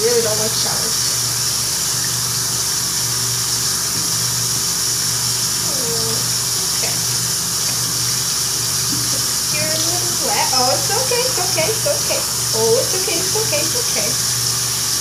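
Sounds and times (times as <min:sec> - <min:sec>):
tap water running into sink: 0:00.0 - 0:15.0
low pulsing hum: 0:05.6 - 0:14.9.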